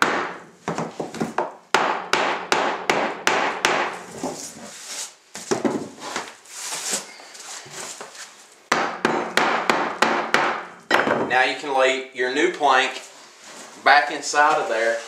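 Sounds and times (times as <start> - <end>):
hammer striking nails: 0.0 - 4.0, 8.7 - 11.3.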